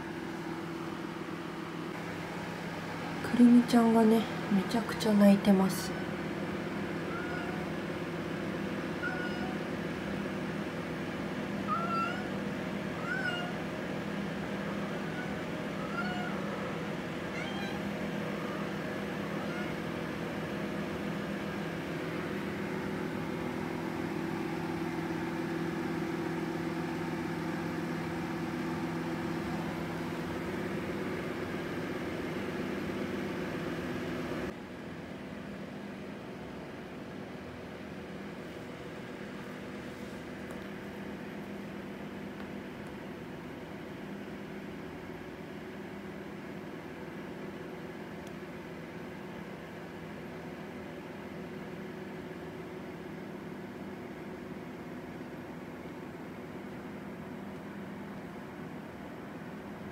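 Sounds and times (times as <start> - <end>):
steady hum: 0.0 - 45.8
cat meowing: 7.0 - 7.7, 9.0 - 9.7, 11.6 - 12.4, 13.0 - 13.7, 14.8 - 16.6, 17.3 - 19.8.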